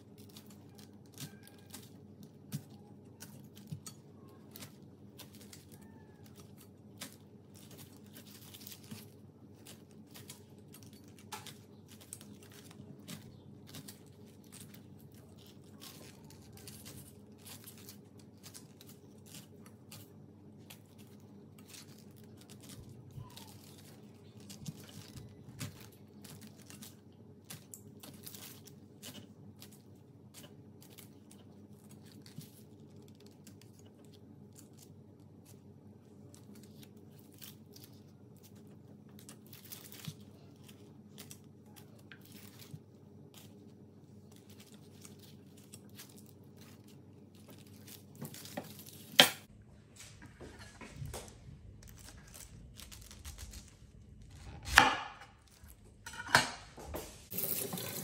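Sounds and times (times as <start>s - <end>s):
faint low hum: 0.0s - 58.0s
knife cutting pineapple: 54.3s - 55.4s.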